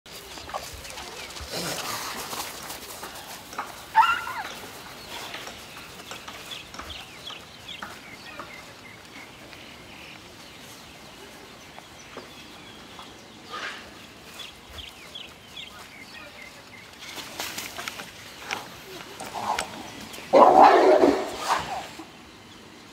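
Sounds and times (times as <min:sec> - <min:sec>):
birds chirping: 0:00.1 - 0:22.9.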